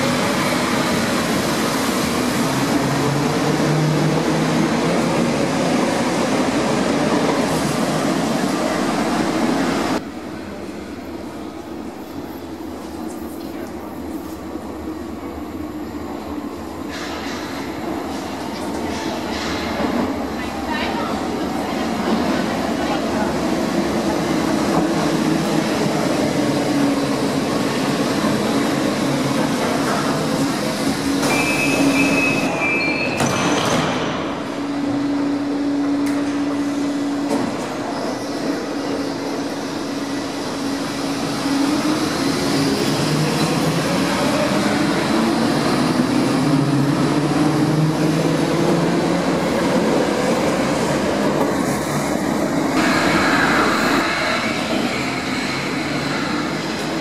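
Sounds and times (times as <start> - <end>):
train arriving: 0.0 - 57.0
train humming at platform: 0.0 - 57.0
brief high squeal: 31.2 - 33.3.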